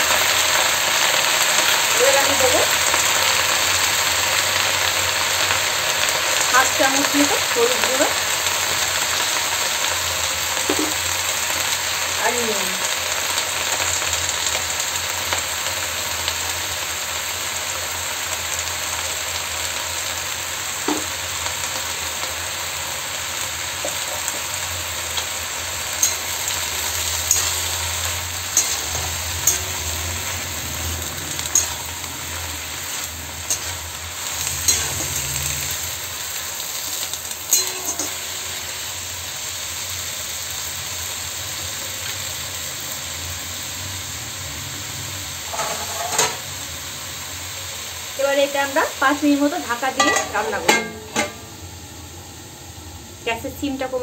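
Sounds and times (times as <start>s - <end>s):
greens sizzling in hot oil: 0.0s - 54.0s
metal spatula scraping pan: 25.9s - 36.0s, 37.5s - 38.4s, 45.5s - 46.4s.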